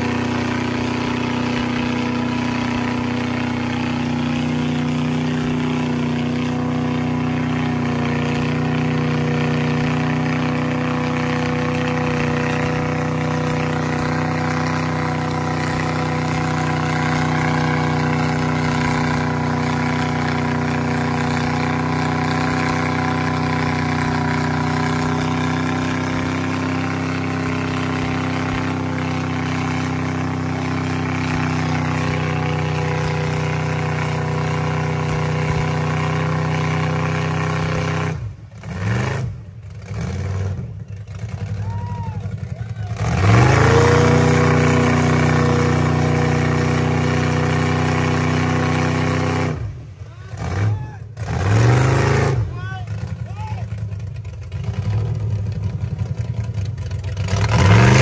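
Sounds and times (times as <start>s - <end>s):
tires spinning in mud: 0.0s - 58.0s
truck engine at steady revs: 0.0s - 58.0s.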